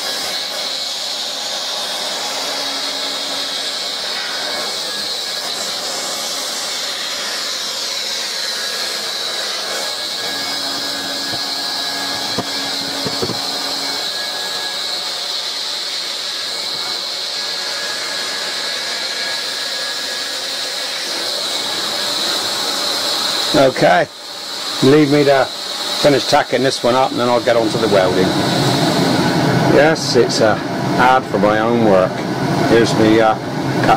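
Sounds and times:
hot-air welding gun hissing: 0:00.0 - 0:31.2
small knocks: 0:12.1 - 0:13.5.

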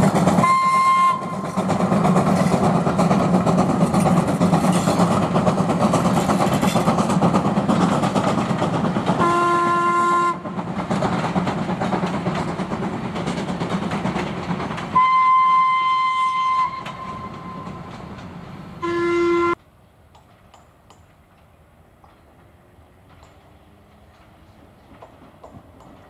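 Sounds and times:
steam train rumbling past: 0:00.0 - 0:26.0
steam whistle blasts: 0:00.4 - 0:01.5, 0:09.2 - 0:10.4, 0:15.0 - 0:17.8, 0:18.8 - 0:19.6.

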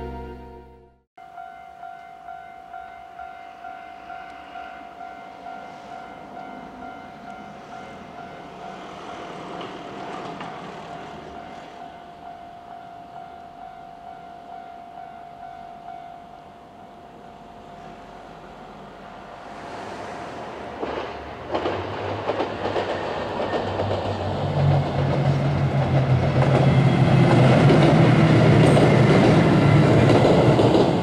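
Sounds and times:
passing vehicle: 0:17.4 - 0:31.0.

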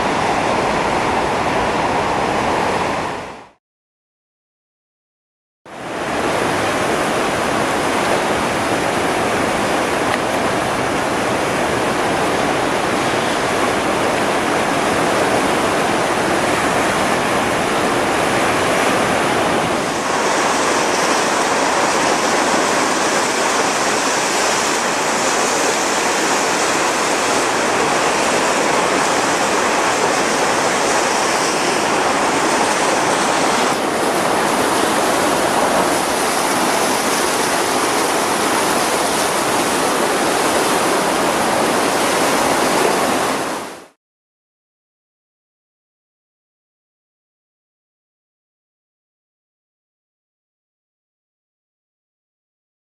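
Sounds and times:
rapids rushing and churning: 0:00.0 - 0:03.6, 0:05.7 - 0:44.0.

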